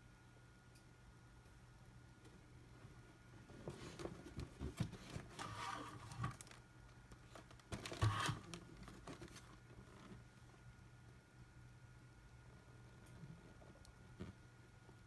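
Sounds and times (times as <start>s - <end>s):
scraping on cardboard: 7.7s - 9.4s.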